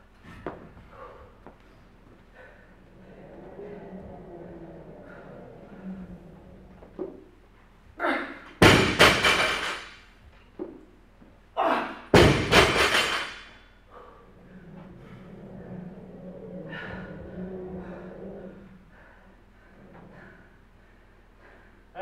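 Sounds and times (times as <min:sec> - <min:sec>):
barbell slamming on rubber floor: 0:08.6 - 0:10.0, 0:12.2 - 0:13.5.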